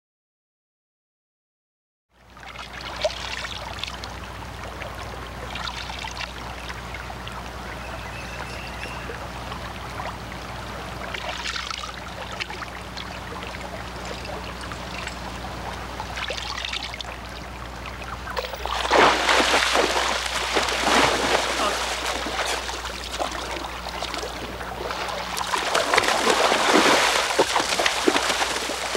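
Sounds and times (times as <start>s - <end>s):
low steady hum: 2.2s - 28.9s
hands splashing in water: 18.4s - 24.3s, 24.9s - 28.9s.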